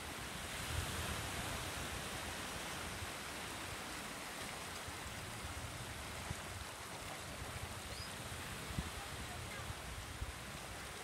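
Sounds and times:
small waves washing onto beach: 0:00.0 - 0:11.0.

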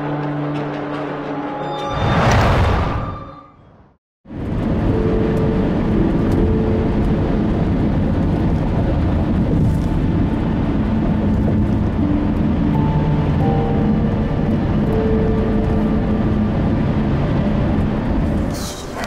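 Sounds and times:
road traffic rumble: 0:04.3 - 0:19.0.

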